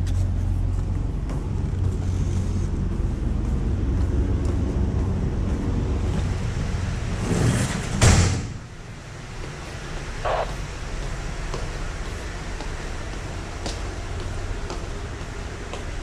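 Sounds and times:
ship engine low rumble: 0:00.0 - 0:16.0
loud burst of noise: 0:10.2 - 0:10.7.

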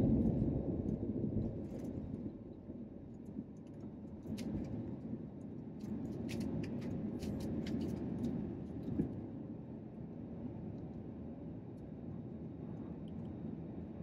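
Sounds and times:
jet engine rumble: 0:00.0 - 0:05.4.

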